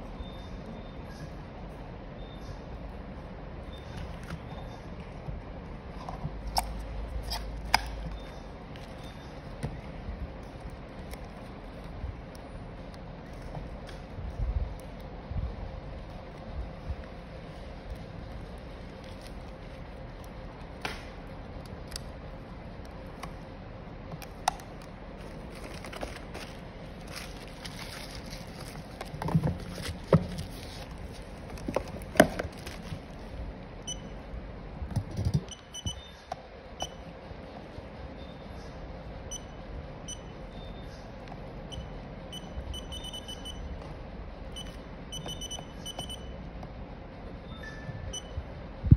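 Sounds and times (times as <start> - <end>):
steady background noise: 0.0 - 48.9
packaging crinkling: 16.0 - 20.8, 24.2 - 33.3.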